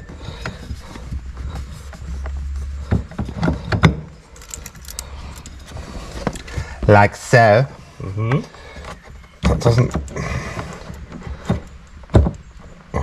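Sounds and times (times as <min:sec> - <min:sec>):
light clicks and knocks of metal part: 0:03.1 - 0:06.5.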